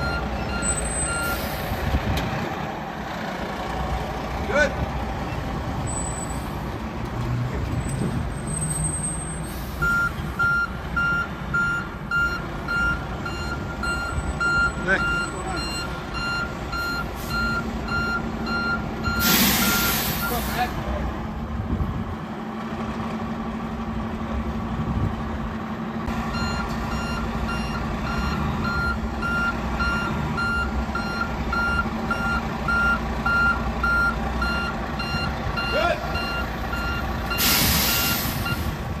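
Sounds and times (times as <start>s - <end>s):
truck backup alarm beeping: 0.0s - 1.9s, 5.8s - 6.5s, 8.1s - 20.7s, 26.0s - 39.0s
diesel engine hum: 0.0s - 39.0s
air hiss: 37.4s - 38.5s.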